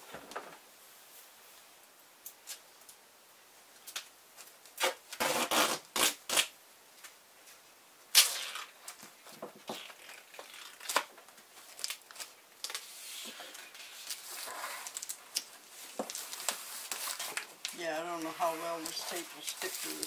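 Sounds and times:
tape rustling and rubbing: 3.9 - 20.0
duct tape ripping: 4.7 - 6.6, 8.1 - 20.0.

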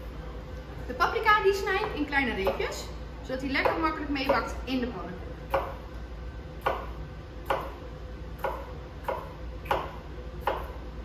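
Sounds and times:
knife chopping on cutting board: 1.8 - 2.8, 5.5 - 5.8, 6.6 - 7.8, 8.4 - 10.8.

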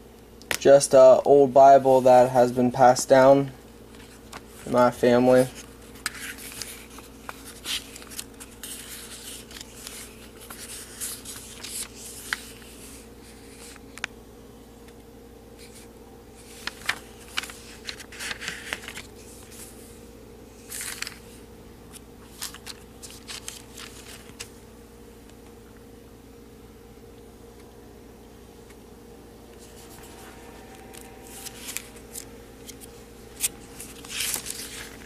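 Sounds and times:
faint hum: 0.0 - 35.0
pages turning: 3.9 - 14.2, 15.6 - 19.8, 20.6 - 24.6, 29.5 - 35.0.

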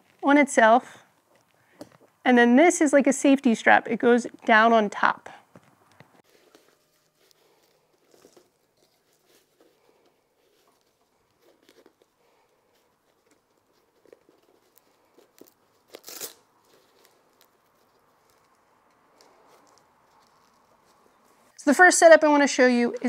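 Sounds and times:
fabric rustling: 5.5 - 21.6
velcro ripping: 10.8 - 21.3.

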